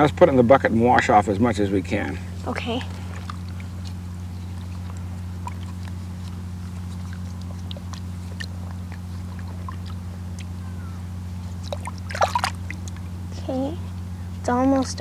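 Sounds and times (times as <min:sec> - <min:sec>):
steady low hum: 0:00.0 - 0:15.0
small water splashes and drips: 0:06.9 - 0:10.6, 0:11.5 - 0:13.1.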